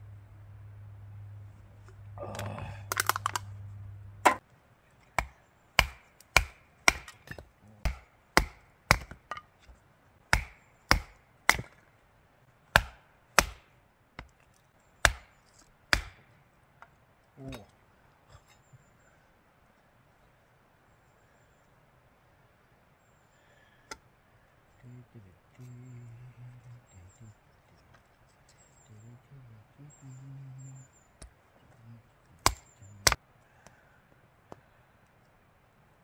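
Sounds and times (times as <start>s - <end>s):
low steady hum: 0.0s - 36.0s
blade chopping wood: 2.4s - 3.4s, 5.1s - 9.5s, 10.3s - 11.8s, 12.7s - 14.4s, 15.0s - 16.3s, 32.4s - 33.2s.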